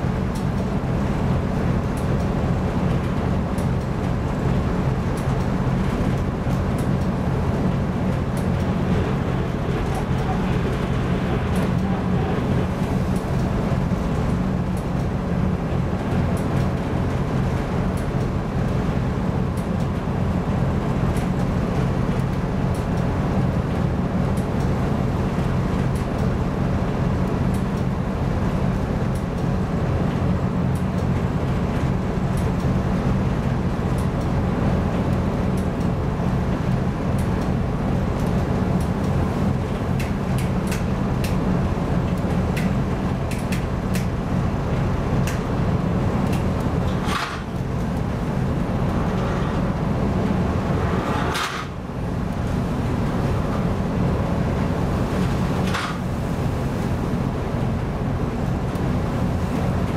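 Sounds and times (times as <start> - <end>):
constant rushing noise: 0.0 - 59.9
ship engine humming: 2.7 - 16.4.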